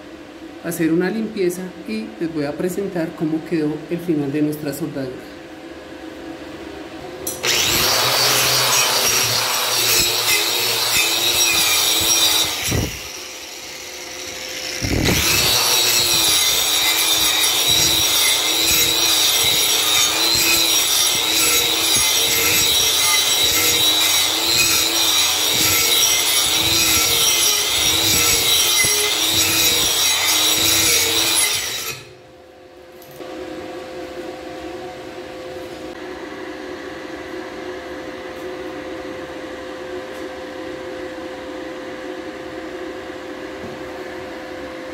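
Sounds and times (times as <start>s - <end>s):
angle grinder on steel: 7.3s - 32.1s.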